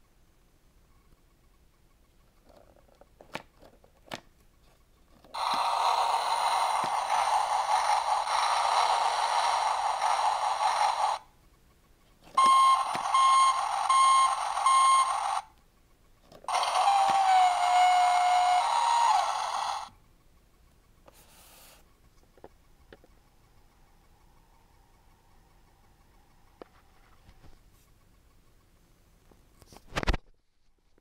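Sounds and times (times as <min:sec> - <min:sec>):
toy machine noise: 0:05.2 - 0:11.4, 0:12.2 - 0:27.0
reversing beeps: 0:12.4 - 0:15.4.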